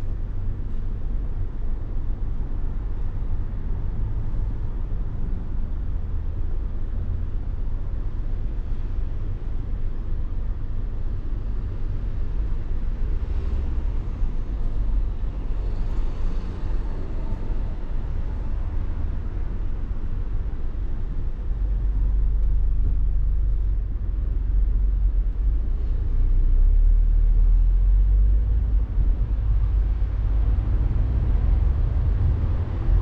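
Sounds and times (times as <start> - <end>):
car engine: 0.0 - 33.0
road noise: 0.0 - 33.0
wind noise: 28.0 - 33.0.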